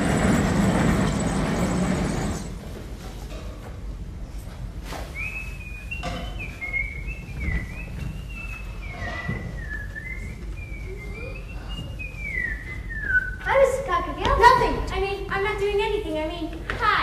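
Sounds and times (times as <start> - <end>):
boy whistling a tune: 5.1 - 13.6.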